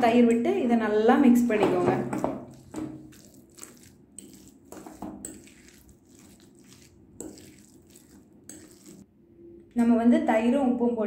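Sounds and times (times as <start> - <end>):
spoon squishing and scraping rice: 1.7 - 9.1.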